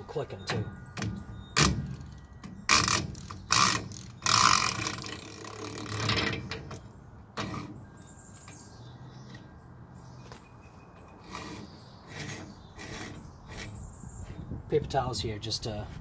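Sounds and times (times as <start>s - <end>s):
ratchet clicking: 1.6s - 6.8s.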